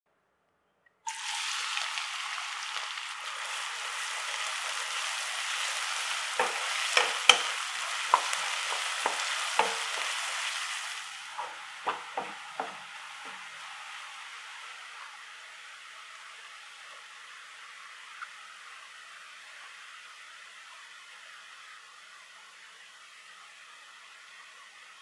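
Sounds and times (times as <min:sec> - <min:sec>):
onions sizzling in hot oil: 0:01.1 - 0:25.0
spatula scraping a pan: 0:03.9 - 0:13.7.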